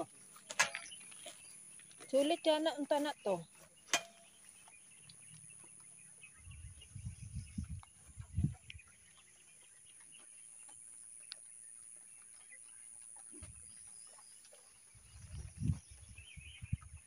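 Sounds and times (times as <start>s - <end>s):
wind buffeting microphone: 4.4s - 9.5s, 13.3s - 13.8s, 14.9s - 17.0s.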